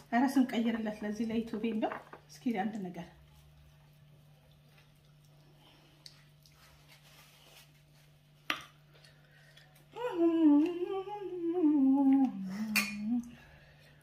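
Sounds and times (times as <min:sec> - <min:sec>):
person humming wavering note: 0:09.9 - 0:13.4.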